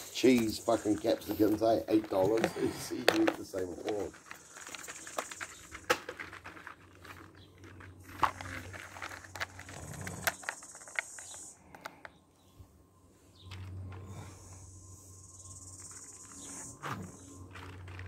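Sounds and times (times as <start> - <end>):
steady high hiss: 0.0 - 5.6
plastic crinkling and clicking: 0.2 - 12.2.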